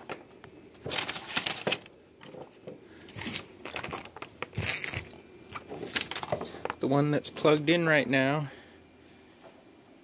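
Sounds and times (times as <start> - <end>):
cables rustling: 0.0 - 7.0.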